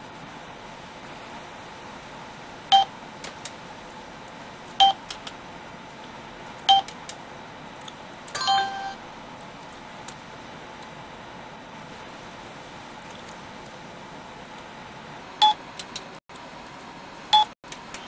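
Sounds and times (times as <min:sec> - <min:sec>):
multi-tone electronic chime: 0:08.4 - 0:09.0
short electronic beeps: 0:08.4 - 0:09.0.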